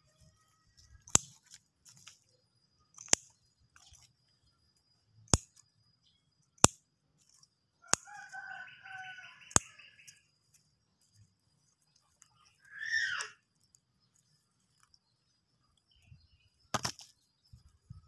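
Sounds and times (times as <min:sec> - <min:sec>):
sharp clicks: 0:02.9 - 0:04.1, 0:05.3 - 0:05.6, 0:09.5 - 0:10.2
bird calling: 0:12.3 - 0:13.4.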